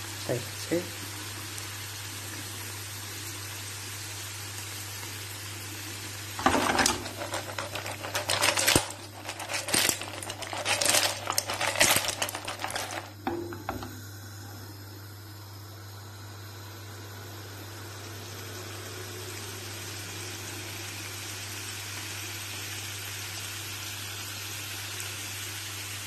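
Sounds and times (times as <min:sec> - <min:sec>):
hot pan hissing: 0:00.0 - 0:26.0
shells clattering against frying pan: 0:06.4 - 0:13.1.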